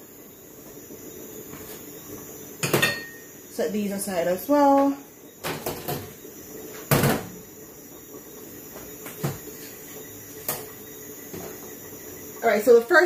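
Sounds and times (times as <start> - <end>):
kitchenware clunking on metal counter: 2.6 - 3.2, 6.9 - 7.3.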